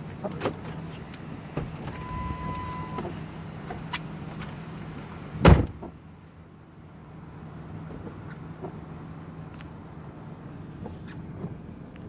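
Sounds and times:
car warning chime: 2.0 - 3.0
car door slamming: 5.4 - 6.0.

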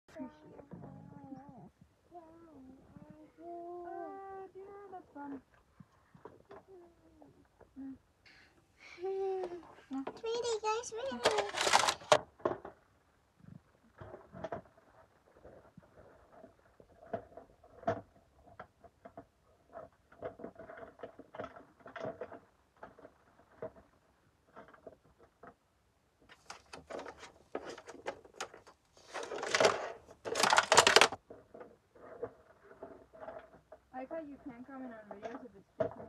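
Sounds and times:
plastic toy pieces clicking: 10.4 - 12.7, 26.4 - 31.2.

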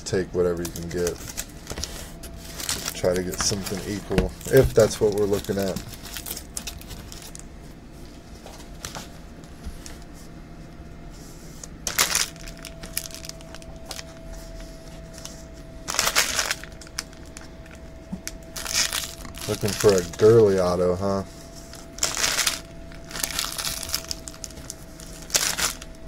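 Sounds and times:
card pack wrappers crinkling: 0.5 - 7.4, 11.8 - 14.2, 15.0 - 26.0.

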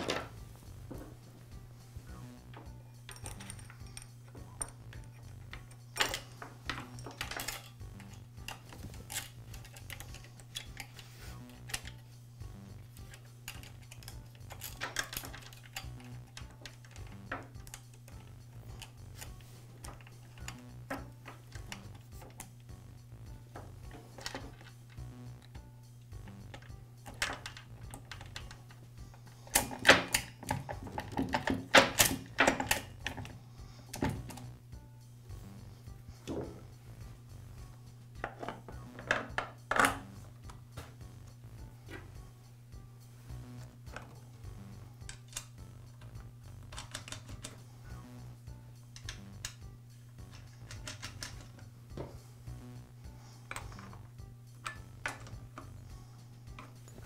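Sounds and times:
chain links clinking on metal bar: 2.6 - 11.0, 13.0 - 22.3.

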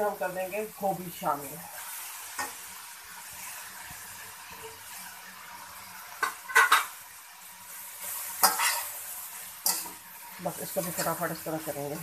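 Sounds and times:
vegetables sizzling in oil: 0.0 - 12.0
metal spatula scraping wok: 6.1 - 7.0, 7.7 - 12.0.

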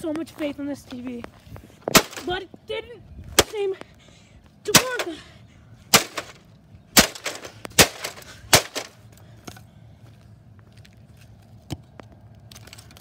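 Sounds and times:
bat cracking a tv screen: 1.9 - 2.3, 4.7 - 5.1, 5.9 - 6.4, 7.0 - 8.9.

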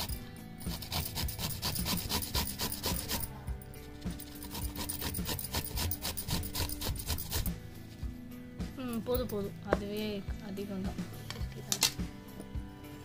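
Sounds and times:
carrot grating on metal grater: 0.0 - 3.4, 4.1 - 7.5.

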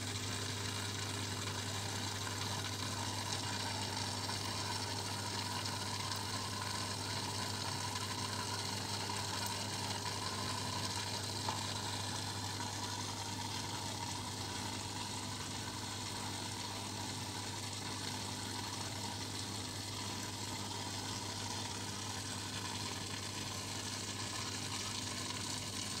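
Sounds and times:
aquarium pump humming: 0.0 - 26.0.

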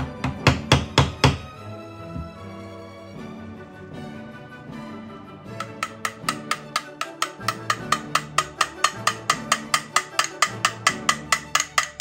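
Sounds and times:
quick ticking beat: 5.6 - 12.0.

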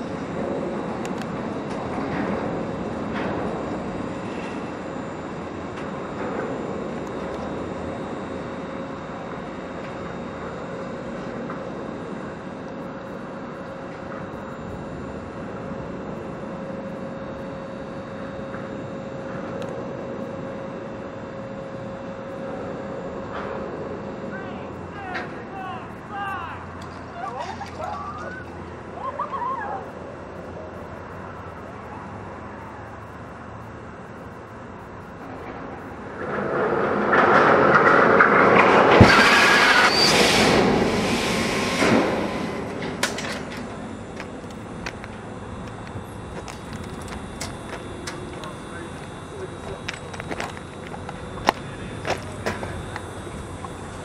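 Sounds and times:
machinery hum with whine: 0.0 - 54.0
broad rushing noise: 36.0 - 54.0.

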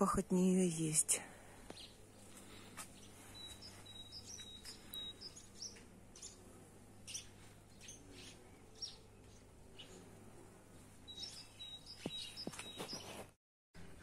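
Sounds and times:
small birds chirping: 1.0 - 13.4.

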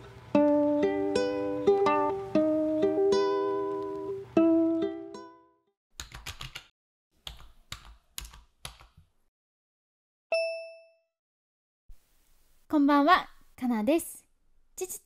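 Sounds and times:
plucked ukulele notes: 0.0 - 5.4
rapid typing key clicks: 6.0 - 6.7
bright bell ding: 10.3 - 11.1.

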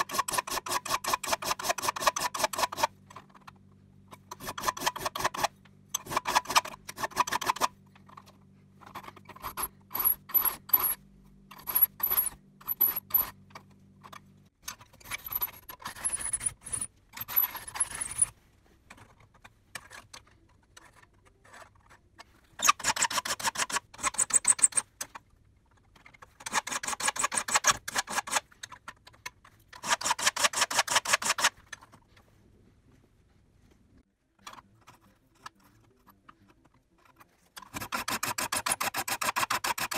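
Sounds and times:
file rasping on saw teeth: 0.0 - 3.0, 4.3 - 7.7, 8.9 - 11.0, 11.6 - 13.4, 15.0 - 18.3, 22.6 - 24.9, 26.4 - 28.5, 29.8 - 31.6, 37.6 - 39.9.

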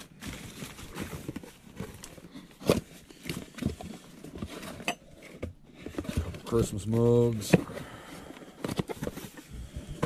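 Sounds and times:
plastic and paper crinkling: 0.0 - 4.9, 8.3 - 9.5.

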